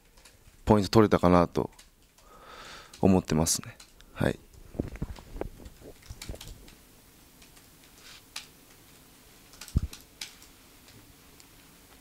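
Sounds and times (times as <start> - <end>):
laptop keyboard typing: 0.0 - 0.6, 1.6 - 3.1, 3.8 - 6.8, 7.4 - 8.8, 9.4 - 11.0.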